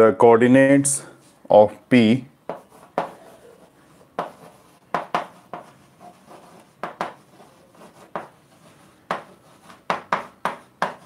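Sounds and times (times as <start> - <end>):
chalk tapping and scraping: 2.4 - 11.0.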